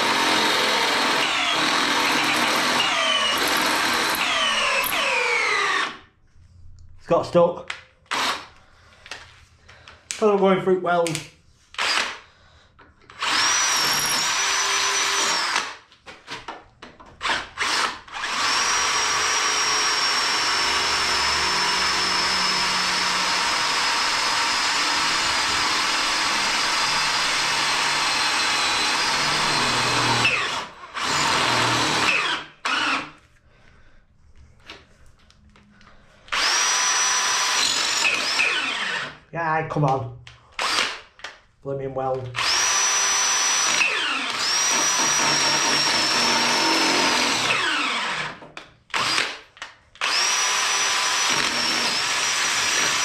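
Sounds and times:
cordless drill boring through steel: 0.0 - 6.1, 8.1 - 8.5, 11.8 - 12.2, 13.1 - 15.8, 17.2 - 33.2, 36.3 - 39.2, 40.6 - 41.0, 42.4 - 49.4, 50.0 - 53.0.

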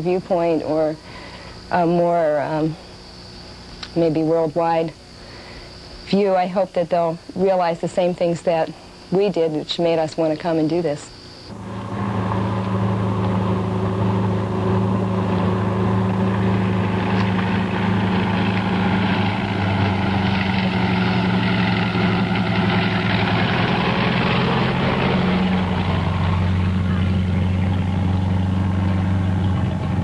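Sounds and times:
engine running: 11.4 - 30.0.

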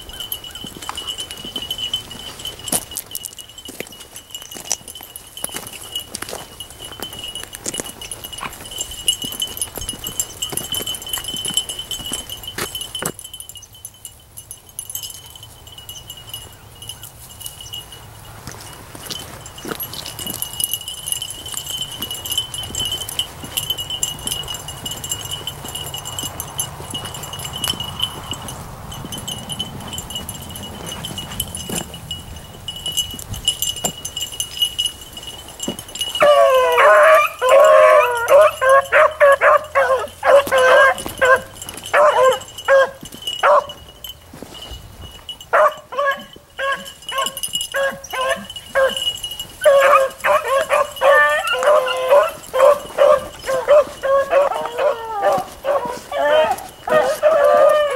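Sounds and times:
rustle of brush: 0.0 - 13.4, 14.8 - 36.2, 40.1 - 57.9
dogs baying and barking: 0.0 - 13.7, 15.0 - 57.9.

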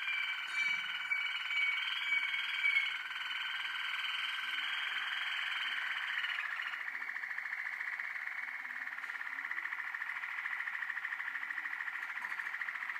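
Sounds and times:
canaries singing: 0.0 - 7.8.

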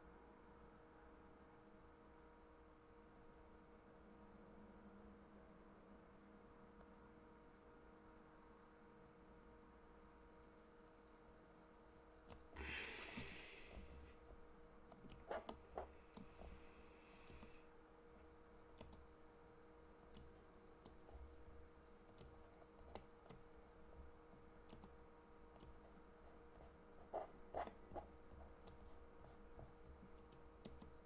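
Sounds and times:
faint steady hum: 0.0 - 31.0
breathy rush of hiss: 12.6 - 14.2, 16.4 - 17.7.

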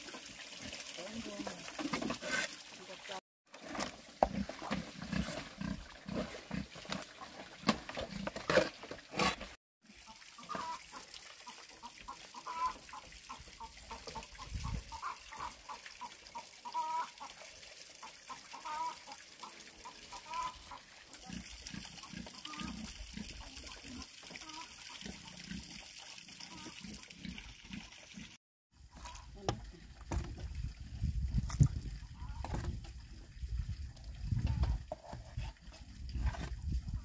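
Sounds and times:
chickens clucking: 11.8 - 16.1, 16.7 - 17.2, 19.8 - 20.8.

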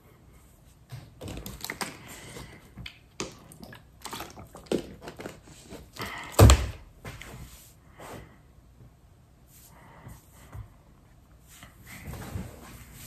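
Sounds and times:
plastic bottle crinkling: 1.2 - 6.6.

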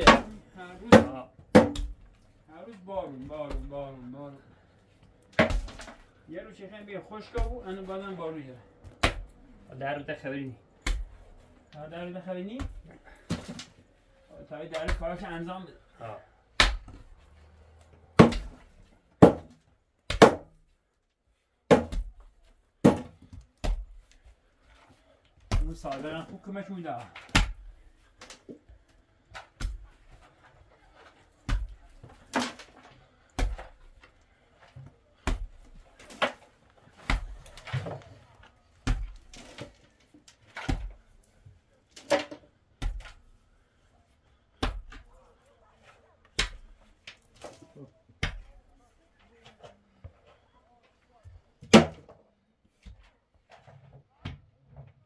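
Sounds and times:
hammer striking a door: 0.0 - 2.0, 19.2 - 19.5, 20.1 - 20.5, 21.7 - 22.1, 22.8 - 23.8
sharp wooden knocks: 0.0 - 2.0, 18.2 - 18.6, 19.2 - 20.5, 21.7 - 22.2, 22.8 - 24.0.

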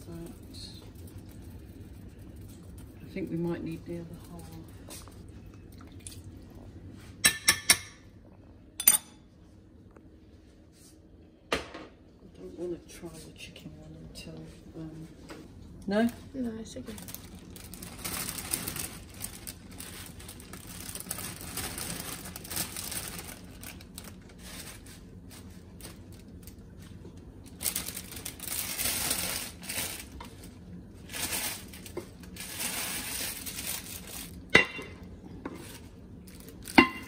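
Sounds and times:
plastic bag crinkling: 16.0 - 34.4, 35.6 - 37.0.

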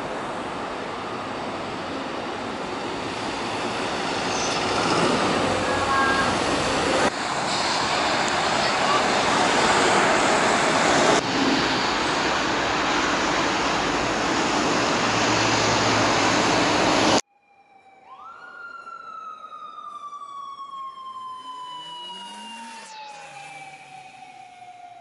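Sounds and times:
rushing road traffic: 0.0 - 17.3
police siren: 2.6 - 7.1, 17.1 - 25.0.

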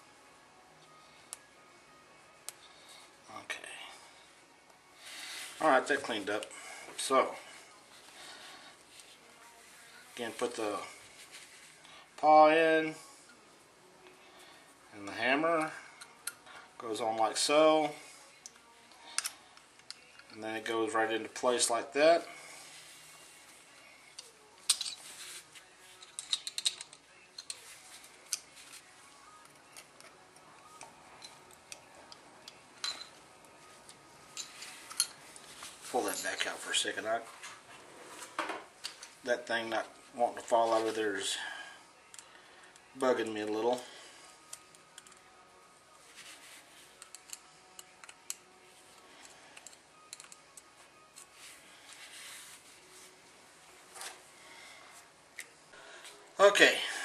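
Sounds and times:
small metal parts clicking: 18.4 - 20.4, 24.2 - 25.0, 26.0 - 27.6, 44.5 - 45.2, 47.0 - 48.4, 49.2 - 51.3
metal parts clattering: 26.0 - 27.6.

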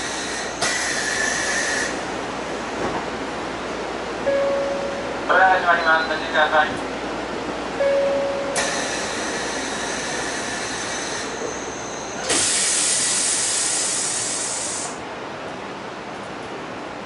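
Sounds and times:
train running noise: 0.0 - 17.0
loud hiss: 12.2 - 15.0.

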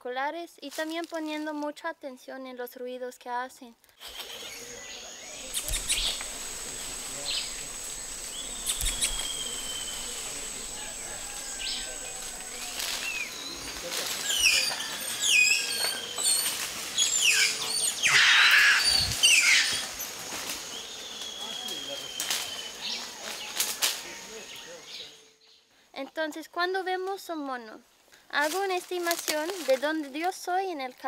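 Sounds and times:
rustling in foliage: 0.6 - 1.8, 4.0 - 25.1, 27.9 - 31.0
monkeys chirping: 4.0 - 23.7.

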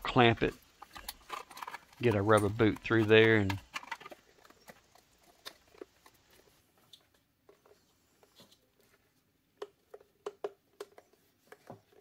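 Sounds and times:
clicks and taps on plastic: 9.6 - 12.0.

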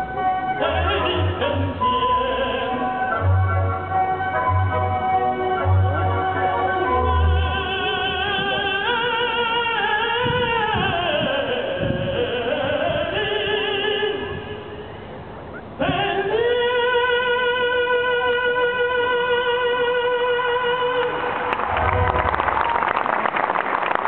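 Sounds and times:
symphony orchestra playing: 0.0 - 9.9, 21.7 - 22.9
operatic singer with vibrato: 0.0 - 22.5.

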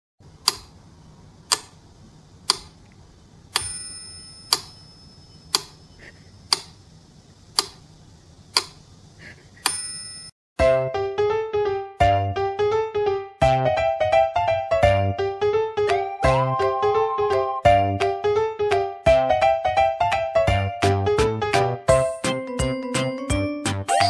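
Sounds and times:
metronome bell ringing: 3.6 - 5.9, 9.7 - 10.3.

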